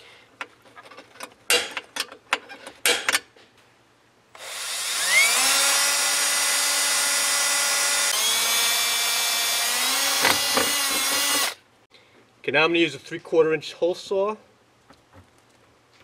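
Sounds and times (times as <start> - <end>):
cordless drill whine: 4.4 - 11.6.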